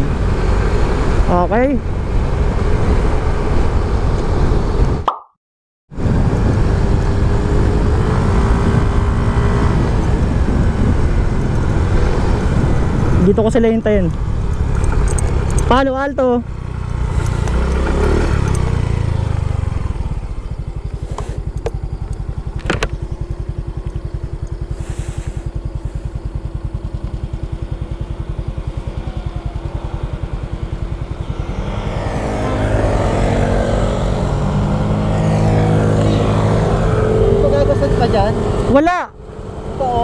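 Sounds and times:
scooters approaching: 7.1 - 40.0
scooter engine idling: 13.9 - 32.9.

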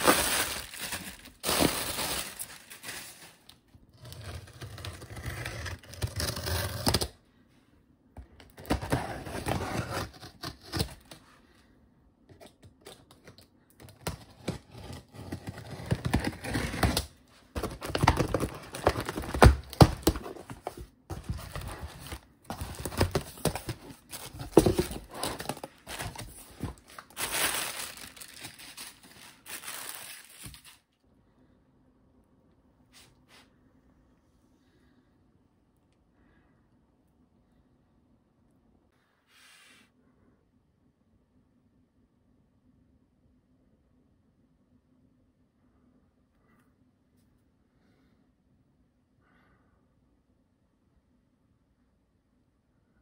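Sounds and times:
tape and cardboard tearing: 14.0 - 30.8.

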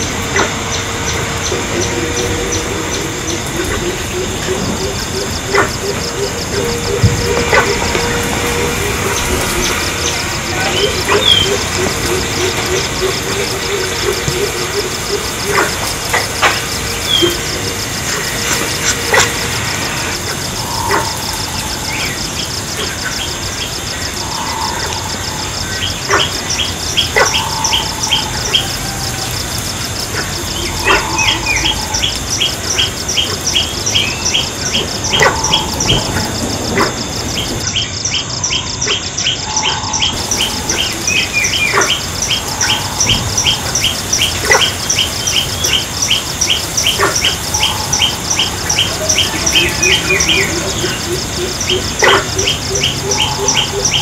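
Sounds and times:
birds chirping: 0.0 - 54.0
high-pitched insect trill: 0.0 - 54.0.

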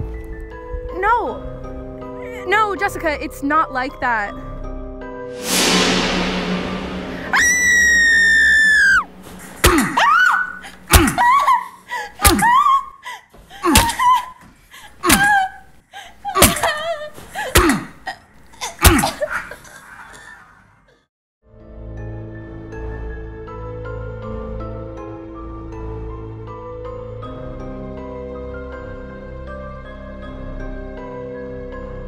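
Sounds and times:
sharp hits: 5.3 - 10.2
woman screaming: 7.4 - 9.1, 9.8 - 13.0.

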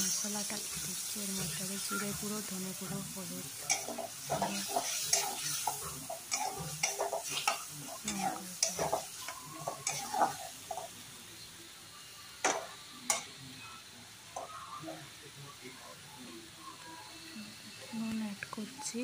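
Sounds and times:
paste sizzling in oil: 0.0 - 13.9
metal spatula scraping a pan: 3.6 - 10.9.

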